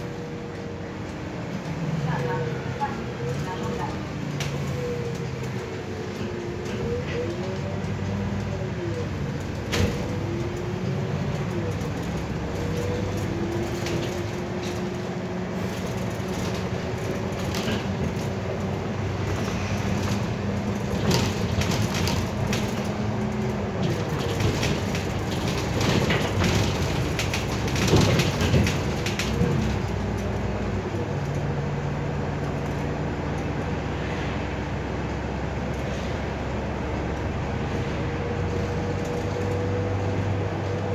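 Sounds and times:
bus drivetrain humming and whining: 0.0 - 40.9
body rattles and knocks: 19.2 - 30.1.

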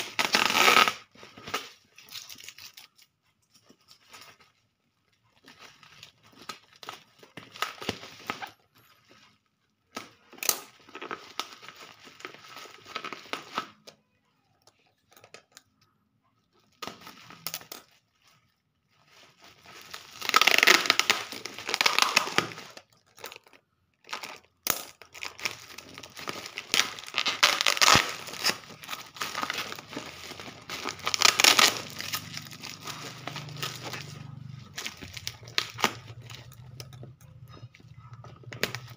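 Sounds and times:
packing tape tearing: 0.0 - 3.0, 19.9 - 22.8, 24.1 - 36.9
bubble wrap crinkling: 0.0 - 13.8, 16.5 - 38.9.

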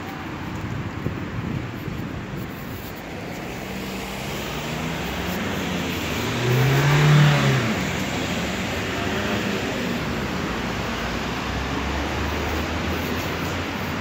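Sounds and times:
street traffic: 0.0 - 14.0
vehicle engine humming close by: 3.0 - 14.0.

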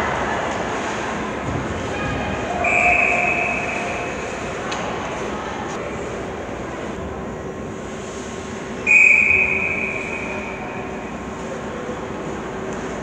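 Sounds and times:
steady mechanical hum: 0.0 - 13.0
referee's whistle blast: 2.6 - 4.1, 8.9 - 10.7.

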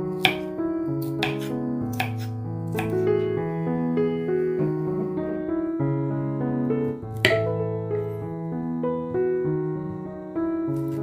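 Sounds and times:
background music with keyboard: 0.0 - 11.0
knife chopping on wooden board: 0.2 - 0.5, 1.1 - 3.0, 7.3 - 7.5.

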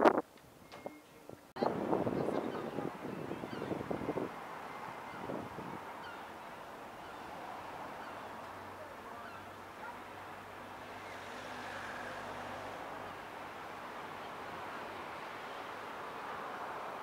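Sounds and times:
road traffic hum: 1.5 - 17.0
faint gull calls: 3.4 - 3.8, 6.0 - 10.0.

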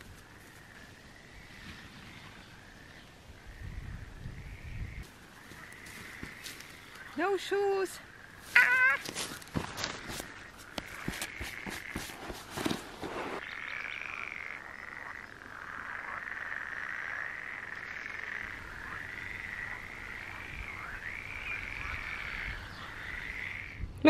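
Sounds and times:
frogs calling: 0.1 - 12.4, 13.4 - 23.9
handling clicks and rustles: 9.0 - 13.4.

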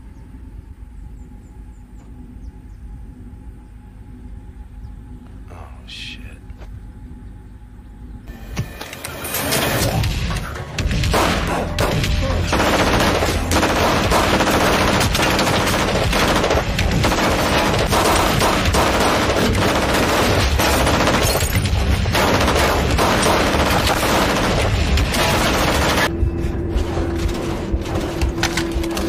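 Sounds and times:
pistol shots: 11.0 - 26.1
automatic rifle fire: 11.1 - 26.1.

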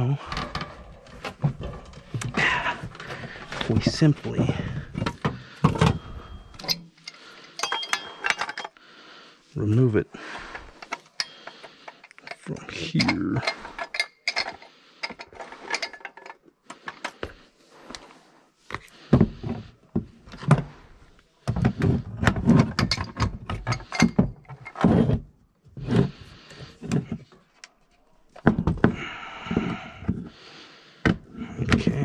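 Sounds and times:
metal clicks and clunks: 0.2 - 8.8, 10.5 - 17.3, 21.4 - 25.1.

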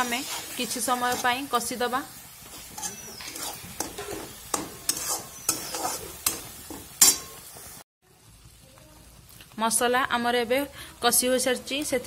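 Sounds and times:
metal spatula scraping pan: 0.0 - 1.6, 2.3 - 7.5
low sizzle of frying paste: 0.0 - 12.0.

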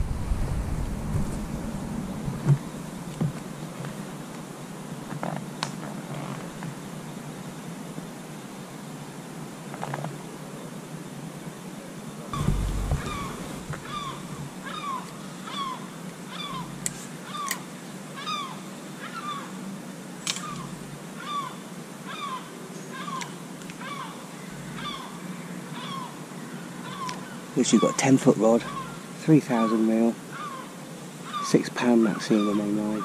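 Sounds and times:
dull thump: 12.4 - 14.6
bird calling: 12.4 - 19.6, 20.3 - 33.0.

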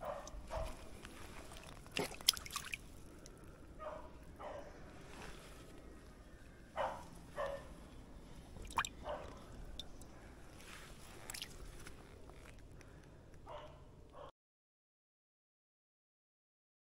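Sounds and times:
hand splashing in shallow water: 1.4 - 3.0, 8.6 - 9.0
water dripping: 1.5 - 3.4, 8.6 - 10.2, 11.2 - 11.6
sharp splashes or knocks: 1.6 - 2.8, 8.6 - 8.9.

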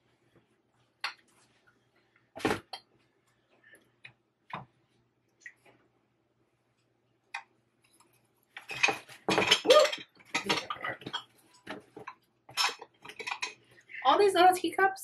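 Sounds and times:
ceramic teacups clinking: 8.6 - 13.6.

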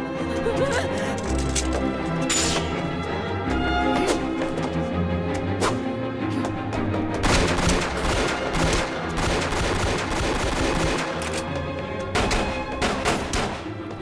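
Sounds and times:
background music: 0.0 - 14.0
rapid pistol fire: 7.2 - 11.2.

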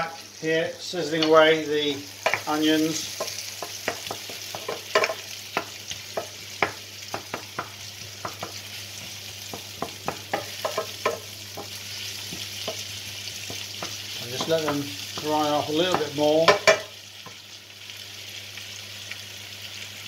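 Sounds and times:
vegetables sizzling in a frying pan: 0.0 - 20.0.

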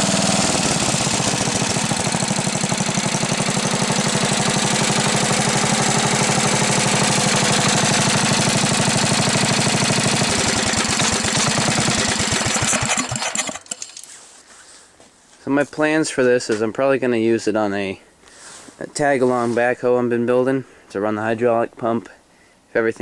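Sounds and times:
single-cylinder engine running: 0.0 - 13.8.

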